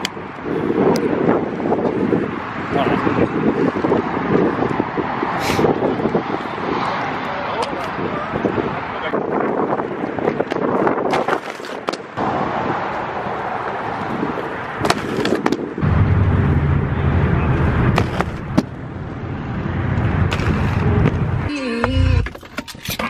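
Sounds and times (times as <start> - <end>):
skate wheels rolling on pavement: 0.0 - 15.8, 17.5 - 21.5
skates clacking on ground: 10.3 - 12.0, 14.8 - 15.6, 18.0 - 18.7
deep rolling rumble: 15.8 - 21.5.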